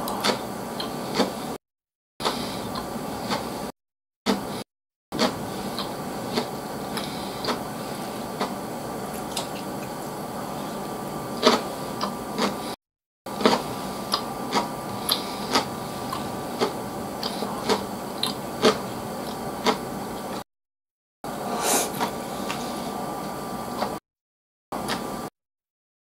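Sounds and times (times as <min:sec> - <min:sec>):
wet chewing clicks: 0:08.4 - 0:10.2, 0:11.4 - 0:12.7, 0:13.4 - 0:20.4.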